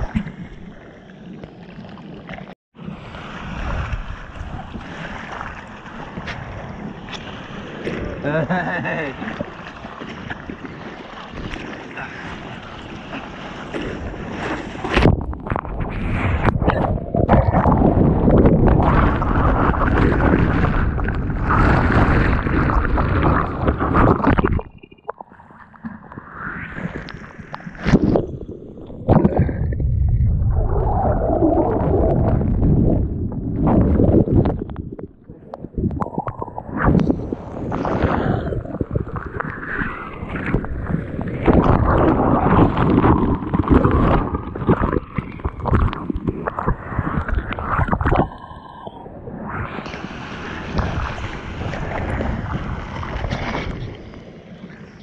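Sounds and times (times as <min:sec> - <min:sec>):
water churning and splashing: 0:00.0 - 0:55.0
underwater whitewater rushing rumble: 0:12.1 - 0:24.7, 0:29.0 - 0:48.2.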